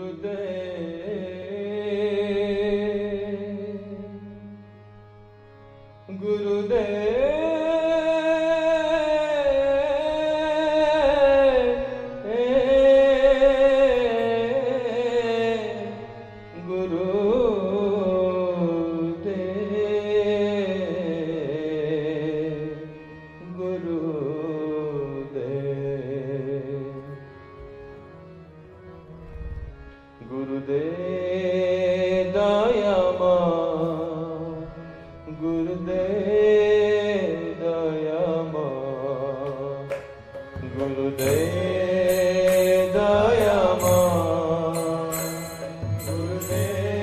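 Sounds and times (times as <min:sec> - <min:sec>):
person singing devotional song: 0:00.0 - 0:28.4, 0:30.0 - 0:47.0
steady drone: 0:40.0 - 0:47.0.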